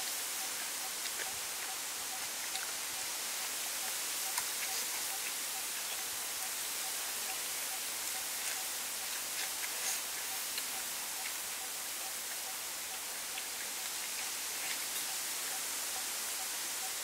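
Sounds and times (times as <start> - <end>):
steady high hiss: 0.0 - 17.0.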